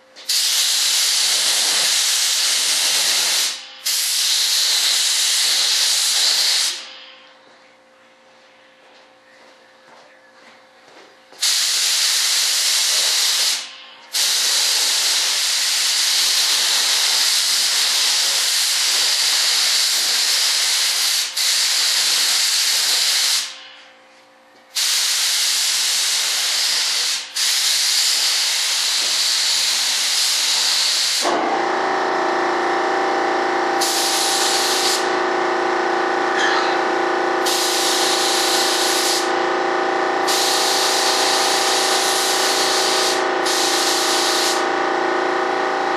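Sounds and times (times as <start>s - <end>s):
steady multi-tone hum: 0.0s - 45.9s
air spray gun hissing: 0.2s - 7.2s, 11.4s - 23.7s, 24.7s - 32.1s, 33.8s - 35.2s, 36.8s - 39.5s, 40.1s - 45.9s.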